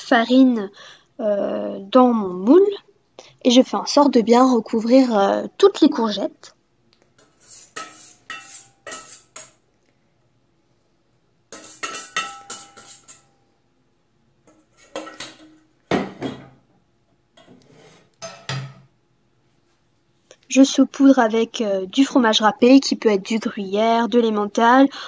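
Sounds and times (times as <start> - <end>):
whisk scraping metal bowl: 7.2 - 9.6, 11.5 - 13.3.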